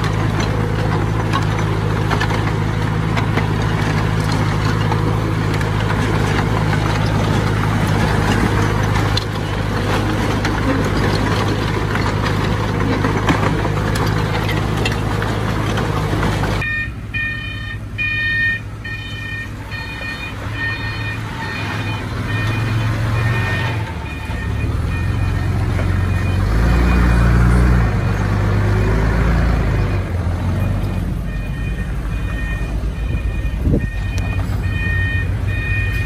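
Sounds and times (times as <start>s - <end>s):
heavy machinery diesel engine: 0.0s - 36.0s
reversing alarm beeping: 16.6s - 27.6s, 28.7s - 36.0s.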